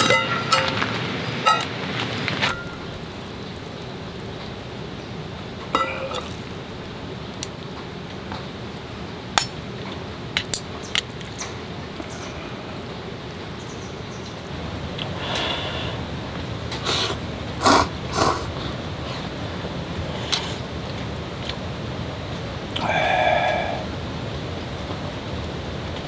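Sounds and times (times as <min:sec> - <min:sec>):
metal cookware clinking: 0:00.0 - 0:00.8, 0:05.8 - 0:06.4
rain hissing: 0:00.0 - 0:26.0.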